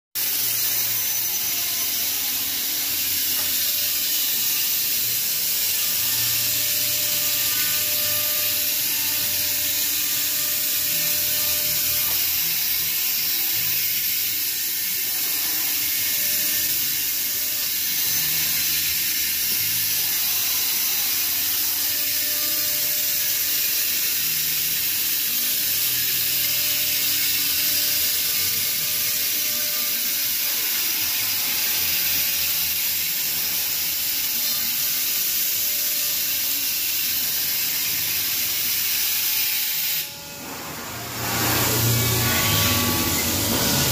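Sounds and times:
router axis drives humming: 0:40.0 - 0:43.9.

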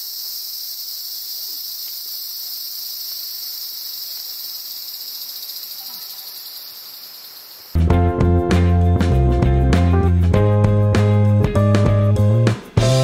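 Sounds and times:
insect chorus buzzing: 0:00.0 - 0:07.8.

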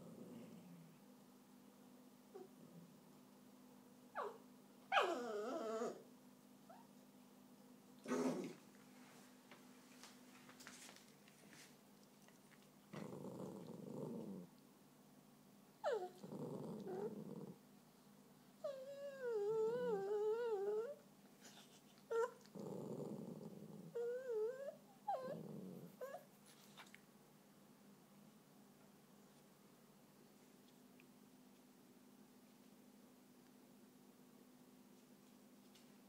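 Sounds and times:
dog growling: 0:00.0 - 0:00.8, 0:04.9 - 0:06.0, 0:08.0 - 0:08.6, 0:12.9 - 0:14.5, 0:15.8 - 0:17.6, 0:22.1 - 0:26.2
dog whining: 0:04.1 - 0:06.0, 0:06.7 - 0:06.9, 0:15.8 - 0:17.6, 0:18.6 - 0:23.1, 0:23.8 - 0:26.3.

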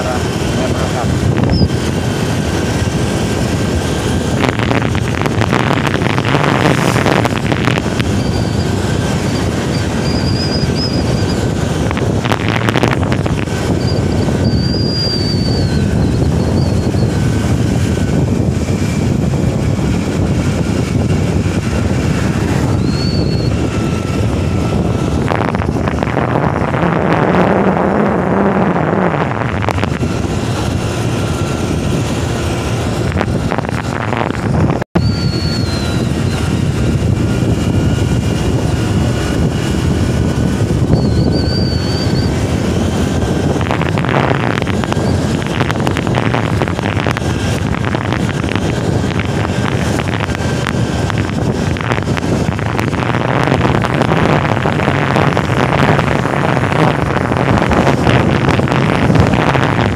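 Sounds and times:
vehicle engine and road noise: 0:00.0 - 0:59.9
wind rush on microphone: 0:00.0 - 0:59.9.

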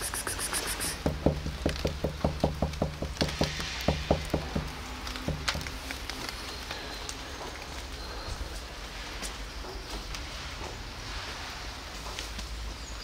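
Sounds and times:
hand tapping on wooden bench: 0:00.8 - 0:05.7.

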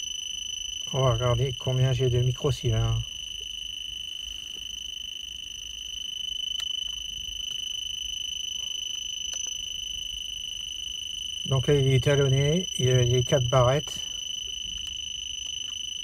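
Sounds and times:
dosimeter beeping rapidly: 0:00.0 - 0:03.8, 0:07.7 - 0:16.0.

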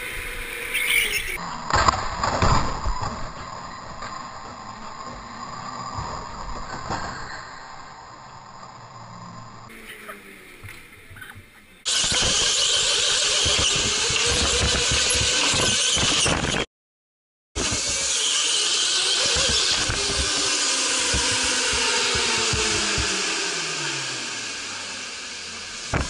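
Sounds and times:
tyre squeal: 0:00.0 - 0:01.4
go-kart motor whine: 0:00.0 - 0:07.2, 0:08.6 - 0:16.7, 0:17.6 - 0:26.0.

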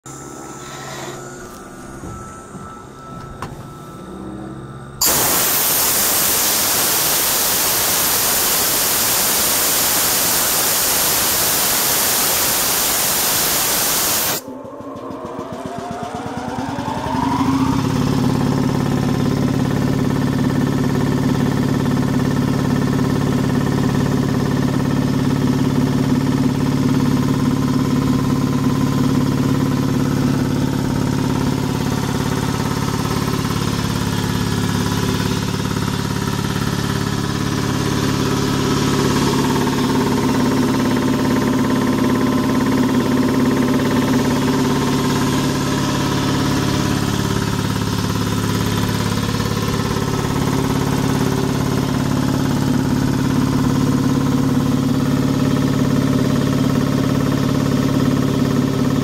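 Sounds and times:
air compressor running: 0:00.0 - 0:59.0
loud steady hiss: 0:05.0 - 0:14.4.

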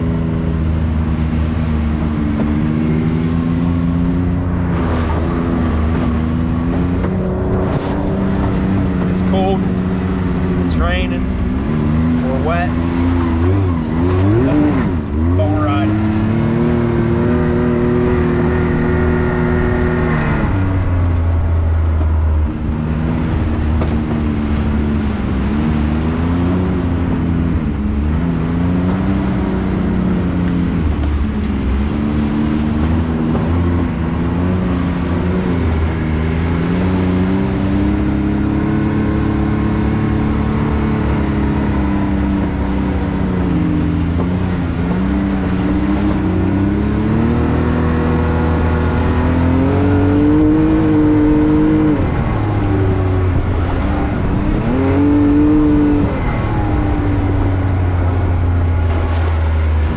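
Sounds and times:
engine revving: 0:00.0 - 0:59.9.

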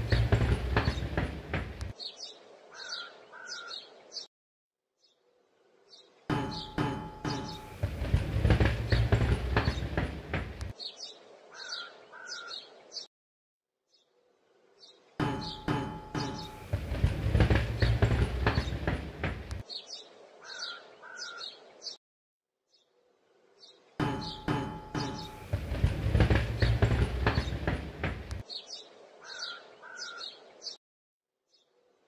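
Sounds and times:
rolling ball rumble and rattling: 0:00.0 - 0:01.9, 0:06.3 - 0:10.7, 0:15.2 - 0:19.6, 0:24.0 - 0:28.4.

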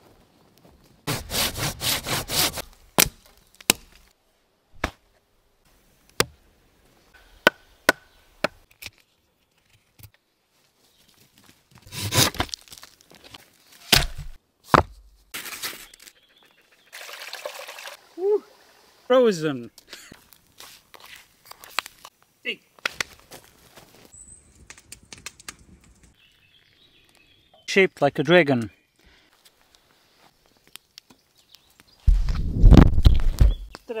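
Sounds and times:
wood being chopped: 0:01.8 - 0:04.0, 0:06.2 - 0:06.4, 0:07.4 - 0:08.6, 0:13.9 - 0:15.1.

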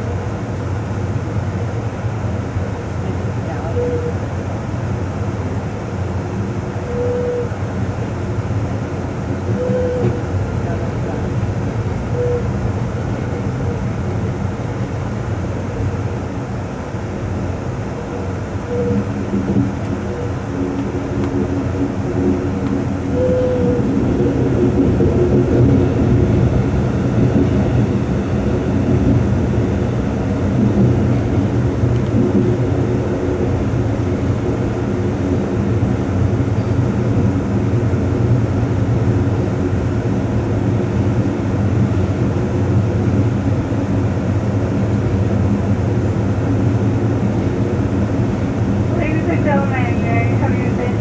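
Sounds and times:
constant low hum: 0:00.0 - 0:51.0
train rolling along track: 0:00.0 - 0:51.0.

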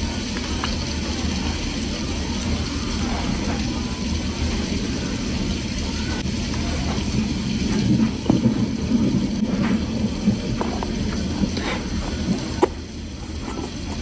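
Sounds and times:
plastic spoon scraping a tub: 0:12.6 - 0:14.0.

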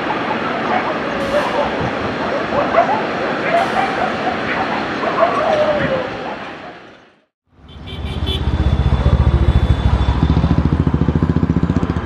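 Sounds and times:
engine rumble with fast throb: 0:08.2 - 0:12.0.

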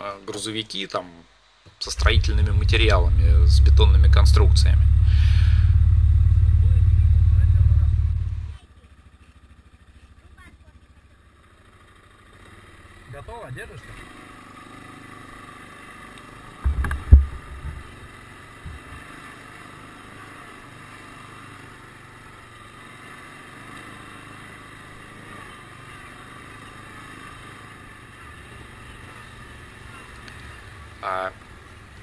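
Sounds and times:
loud low thumps: 0:01.8 - 0:08.6
atv engine running: 0:01.8 - 0:13.4, 0:14.0 - 0:32.0.

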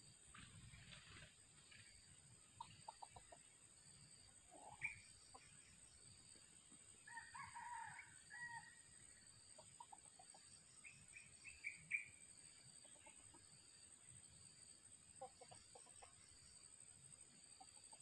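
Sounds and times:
rooster crowing: 0:07.1 - 0:08.8.

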